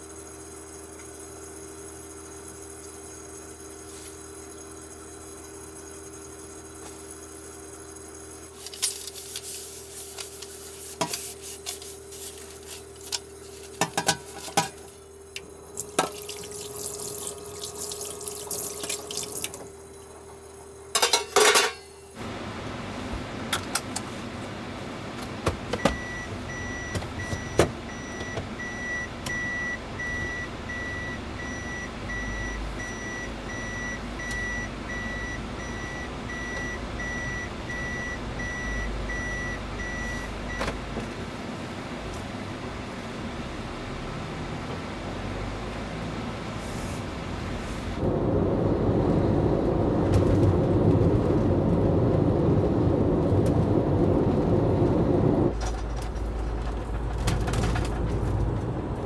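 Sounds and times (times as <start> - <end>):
running water: 15.7 - 19.6
dishes clinking: 21.0 - 22.0
vehicle rumble: 24.1 - 59.0
reverse warning beeps: 25.8 - 40.7.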